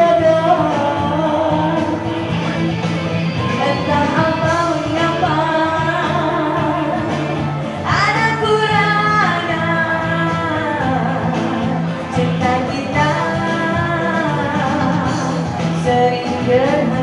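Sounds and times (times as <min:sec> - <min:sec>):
backing music: 0:00.0 - 0:17.0
woman singing pop ballad: 0:00.0 - 0:17.0.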